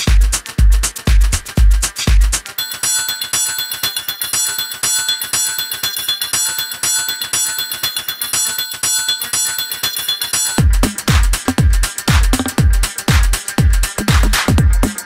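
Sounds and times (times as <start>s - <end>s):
electronic dance music: 0.0s - 15.0s
bell-like synth notes: 2.6s - 15.0s.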